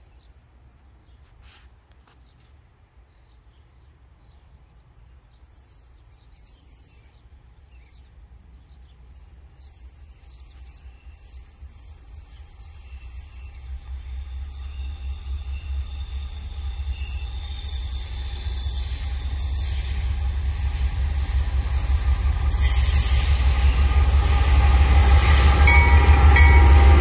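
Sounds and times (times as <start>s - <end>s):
distant freight train rumble: 2.5s - 27.0s
birds chirping: 16.3s - 27.0s.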